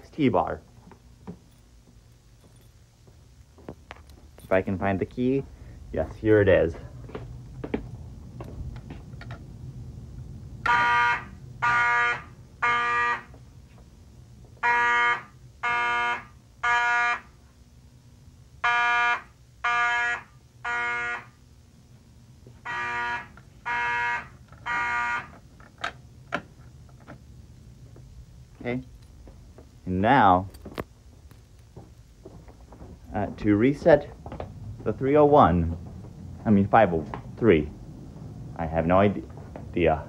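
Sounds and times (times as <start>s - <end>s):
fire alarm horn blasts: 10.6s - 13.4s, 14.6s - 17.4s, 18.6s - 21.5s, 22.6s - 25.5s.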